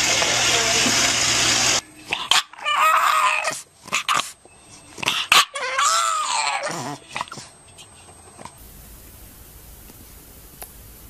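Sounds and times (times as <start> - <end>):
dog crying high-pitched: 2.1 - 4.3, 5.0 - 7.4.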